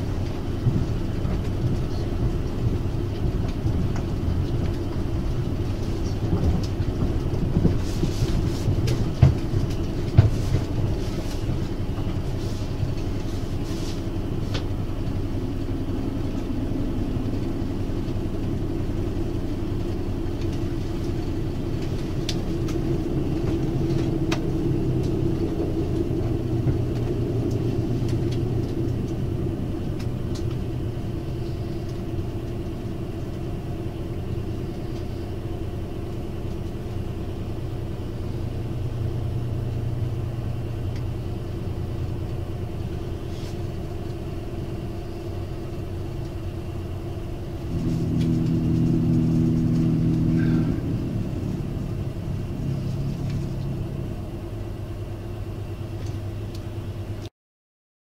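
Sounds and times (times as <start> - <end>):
railcar engine rumble: 0.0 - 57.3
humming tone with several pitches: 47.6 - 54.3.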